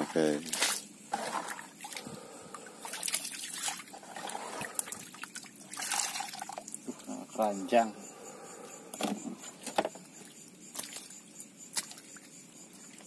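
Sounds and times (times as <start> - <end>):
water splashing and trickling: 0.0 - 7.9, 9.0 - 13.0
small splashes and drips: 0.3 - 7.2, 9.6 - 13.0.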